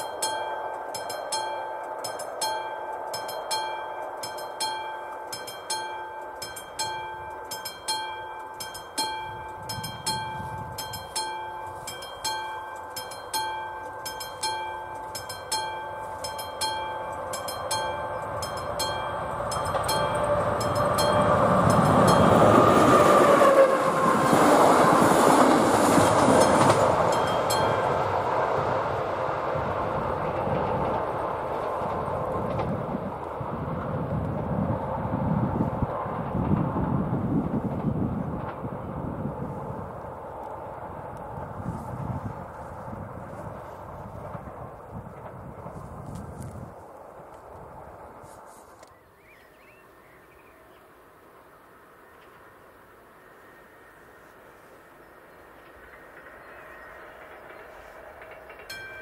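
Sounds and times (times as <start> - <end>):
level crossing warning bell: 0.0 - 36.8, 56.2 - 59.0
passenger train passing: 0.0 - 59.0.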